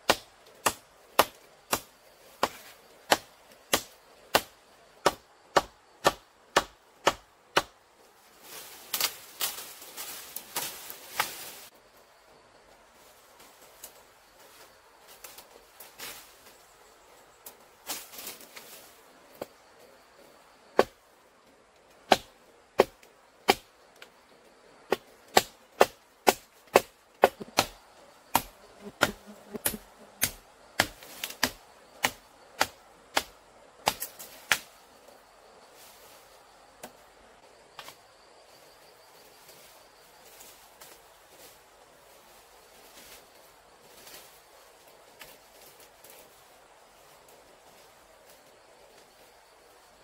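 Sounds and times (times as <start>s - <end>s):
blade chopping bamboo: 0.0s - 7.8s, 20.8s - 21.0s, 22.0s - 23.7s, 24.9s - 34.7s.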